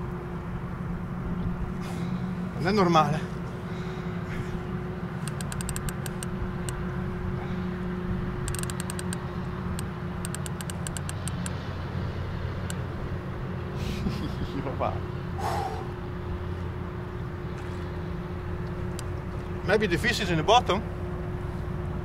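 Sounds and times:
boat engine idling: 0:00.0 - 0:22.0
rapid high clicks: 0:05.2 - 0:06.8, 0:08.5 - 0:09.2, 0:09.8 - 0:11.6.

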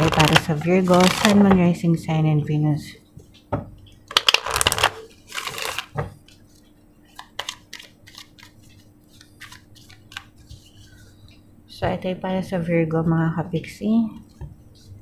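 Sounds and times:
cards being shuffled: 0:00.0 - 0:01.5, 0:04.1 - 0:11.0.

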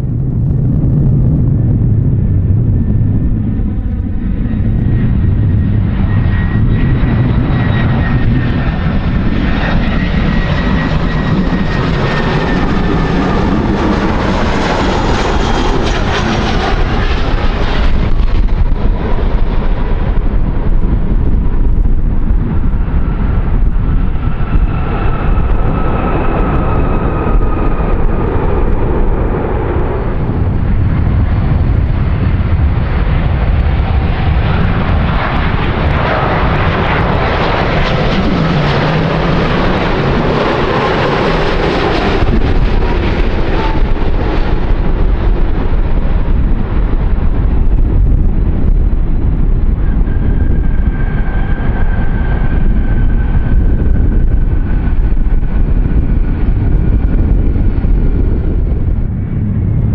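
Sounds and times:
jet engines passing by: 0:00.0 - 0:59.9.

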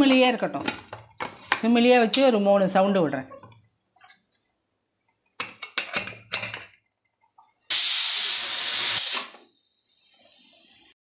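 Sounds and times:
pressure cooker steam hissing: 0:07.7 - 0:11.0.

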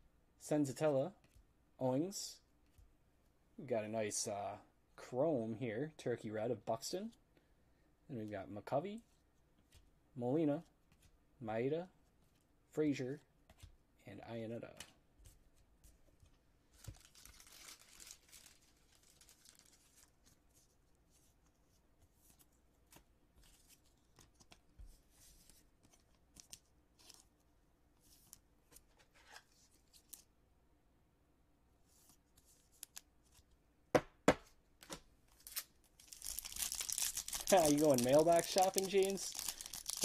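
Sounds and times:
faint crinkling and handling: 0:11.8 - 0:30.4, 0:35.2 - 0:40.0
wrapper ripping open: 0:16.8 - 0:20.2, 0:35.4 - 0:40.0.

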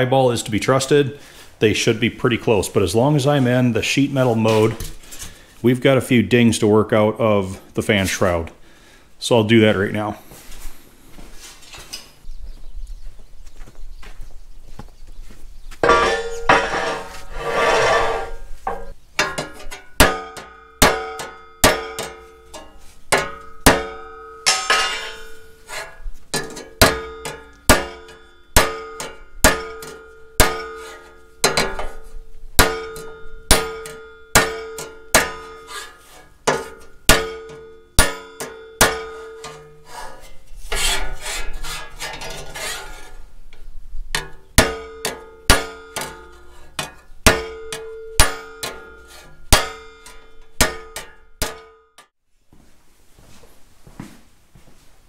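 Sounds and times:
hammer striking metal: 0:15.8 - 0:17.2, 0:18.2 - 0:32.0, 0:32.6 - 0:39.8, 0:44.2 - 0:52.1
metal scraping: 0:15.8 - 0:43.4, 0:44.1 - 0:51.7.

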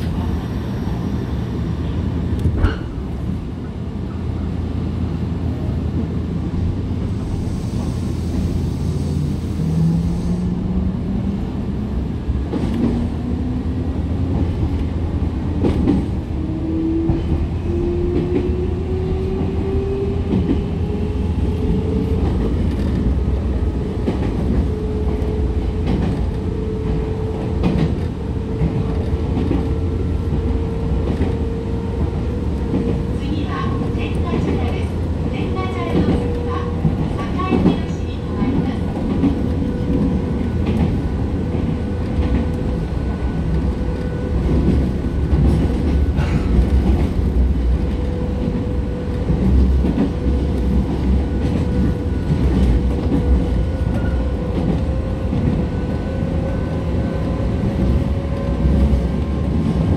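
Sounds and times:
train wheels rumbling on track: 0:00.0 - 0:59.9
rail-joint clicks: 0:35.5 - 0:42.7, 0:43.4 - 0:55.6.

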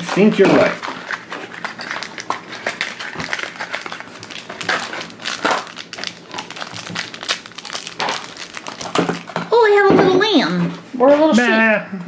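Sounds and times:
foil wrapper crackling: 0:00.3 - 0:09.8.

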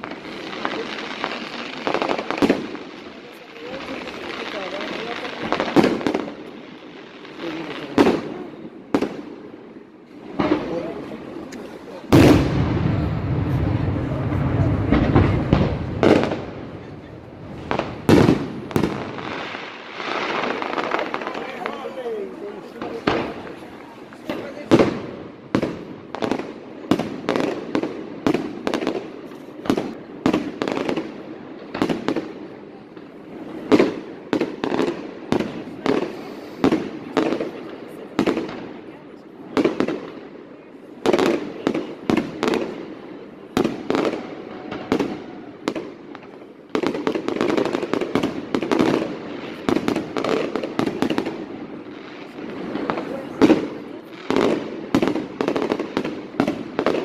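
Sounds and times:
fireworks bangs: 0:00.0 - 0:57.0
people talking: 0:03.1 - 0:05.9, 0:07.4 - 0:08.7, 0:10.4 - 0:12.3, 0:13.4 - 0:15.9, 0:20.6 - 0:25.0, 0:52.8 - 0:54.0.

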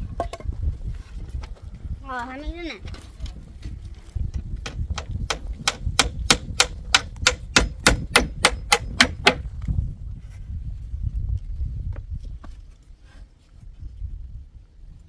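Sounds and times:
hammer driving nails into wood: 0:04.6 - 0:09.4.

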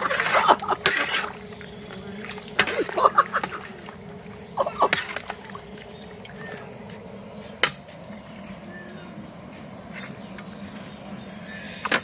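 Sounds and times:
person laughing: 0:00.0 - 0:00.9, 0:02.7 - 0:03.8, 0:04.6 - 0:05.1
low hum: 0:00.0 - 0:12.0.

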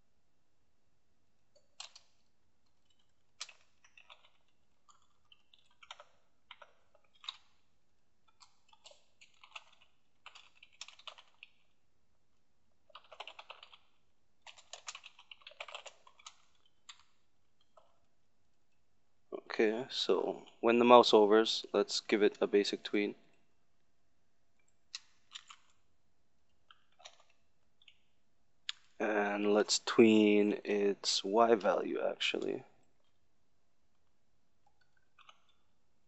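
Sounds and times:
faint keyboard typing: 0:01.5 - 0:11.8, 0:12.8 - 0:18.1, 0:24.6 - 0:25.9, 0:26.6 - 0:30.9, 0:33.9 - 0:35.8.

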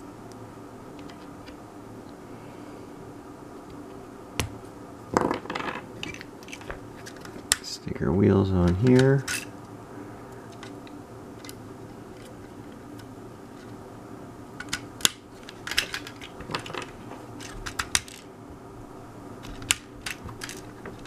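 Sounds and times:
low steady hum: 0:00.0 - 0:21.0
plastic pieces clicking: 0:14.6 - 0:18.3, 0:19.4 - 0:21.0.

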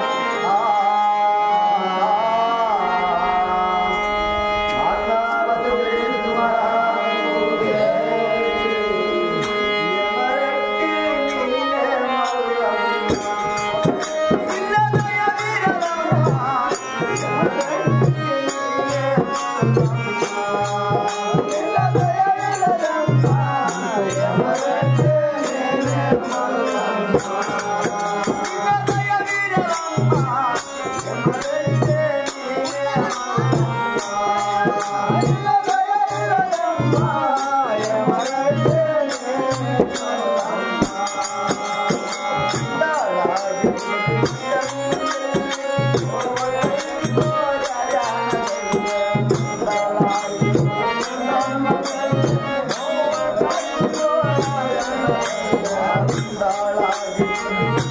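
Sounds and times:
person singing devotional song: 0:00.0 - 0:57.9
drum beating steady rhythm: 0:12.2 - 0:57.9.

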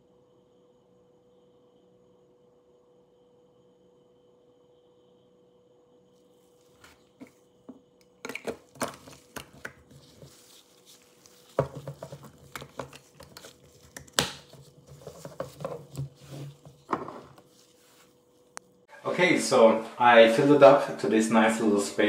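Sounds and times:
clicks taps and rustles: 0:06.8 - 0:17.5.

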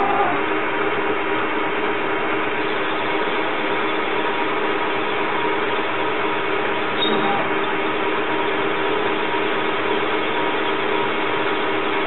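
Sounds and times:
lathe spindle whirring: 0:00.0 - 0:12.0
low drive tones: 0:02.2 - 0:11.7.

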